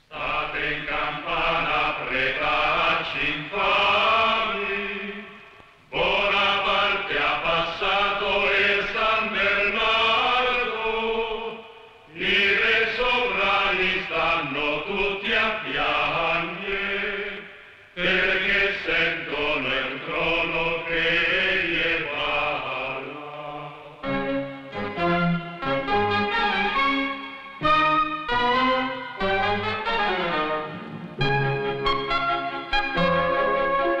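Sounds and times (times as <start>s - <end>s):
voices singing a chant: 0.1s - 24.1s.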